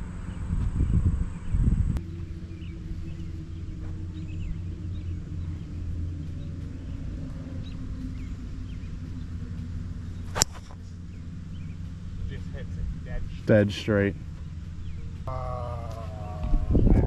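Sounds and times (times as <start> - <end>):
steady low rumble: 0.0 - 17.0
golf club striking ball: 9.9 - 11.6.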